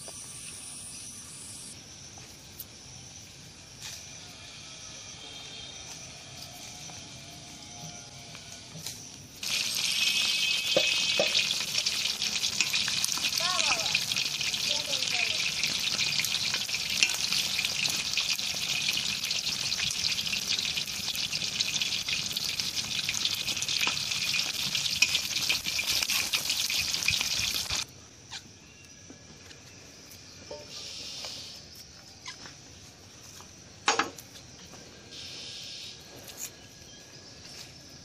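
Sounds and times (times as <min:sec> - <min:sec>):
fish sizzling in hot oil: 0:09.4 - 0:27.9.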